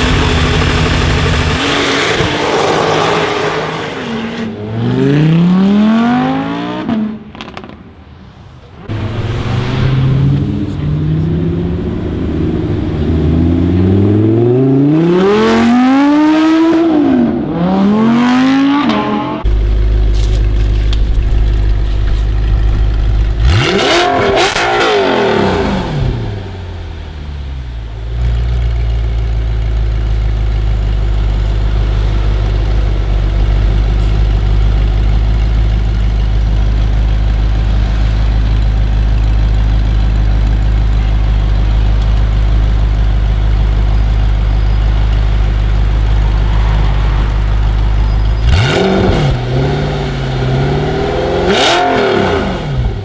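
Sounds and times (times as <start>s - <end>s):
car engine idling: 0.0s - 2.4s, 19.4s - 51.6s
engine revving: 0.0s - 7.8s, 8.9s - 19.5s, 23.3s - 26.7s, 45.7s - 53.0s.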